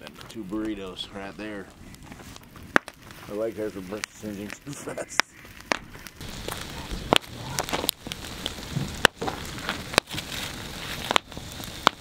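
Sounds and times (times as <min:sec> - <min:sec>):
campfire crackling: 0:00.0 - 0:12.0.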